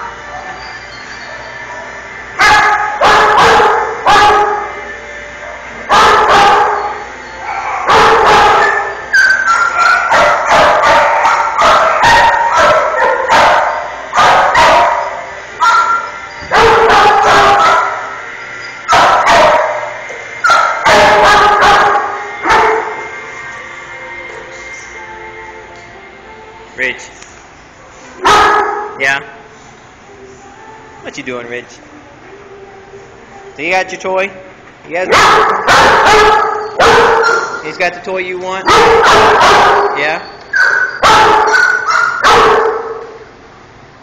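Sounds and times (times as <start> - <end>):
dogs barking in echoing room: 0.0 - 23.2, 28.2 - 29.3, 34.9 - 43.4.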